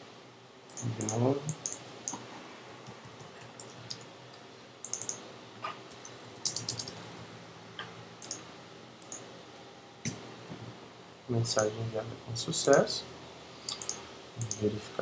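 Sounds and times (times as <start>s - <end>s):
computer keyboard typing: 0.7s - 2.2s, 2.9s - 4.0s, 4.8s - 5.2s, 5.9s - 7.0s, 9.0s - 9.2s, 13.7s - 14.7s.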